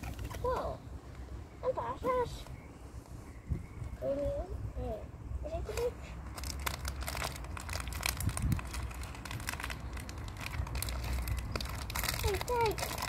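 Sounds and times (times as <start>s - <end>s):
plastic wrapping crinkling: 5.8s - 13.0s.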